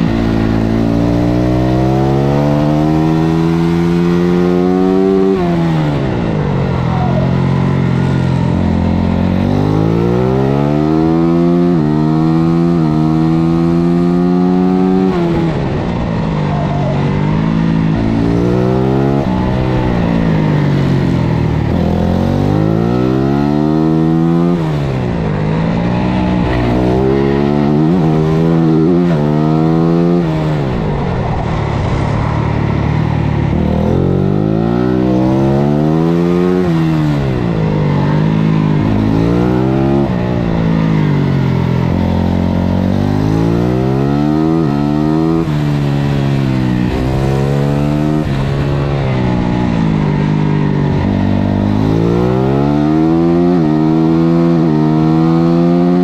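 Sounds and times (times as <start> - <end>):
motorcycle engine revving: 0.0 - 56.0
wind rush: 30.2 - 34.8.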